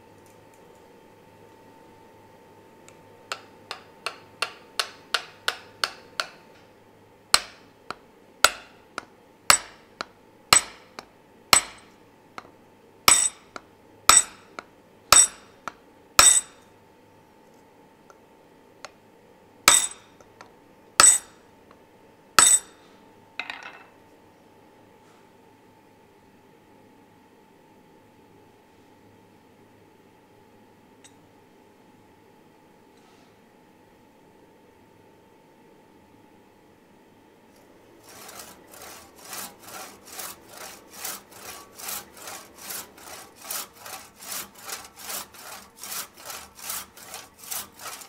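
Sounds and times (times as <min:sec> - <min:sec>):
hammer knocking with metallic ring: 0:14.1 - 0:14.4.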